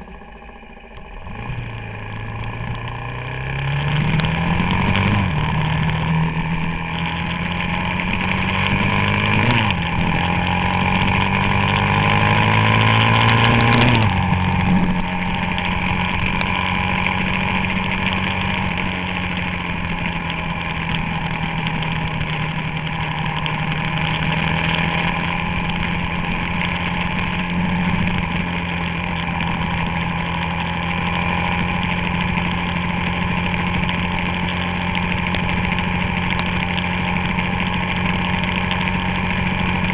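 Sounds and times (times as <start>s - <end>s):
motorcycle engine accelerating: 0.0s - 39.9s.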